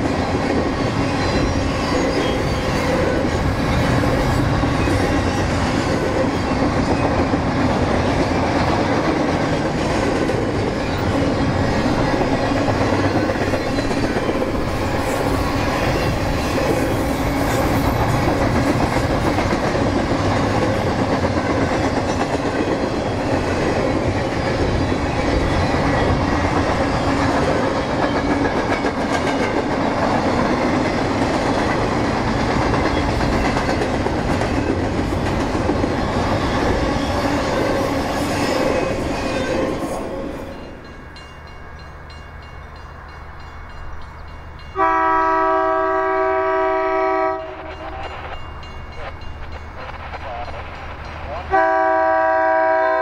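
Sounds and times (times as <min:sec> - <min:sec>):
train wheel clatter: 0:00.0 - 0:41.0
freight train rumbling past: 0:00.0 - 0:53.0
locomotive air horn chord: 0:44.8 - 0:47.6, 0:51.5 - 0:53.0.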